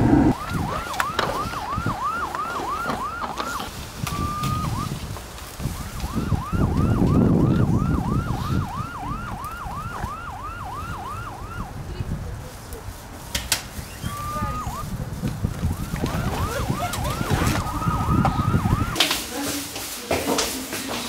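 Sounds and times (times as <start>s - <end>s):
electronic siren yelping: 0.0s - 5.0s, 5.8s - 11.7s, 13.9s - 14.9s, 15.7s - 19.0s
wind on microphone: 0.0s - 19.0s.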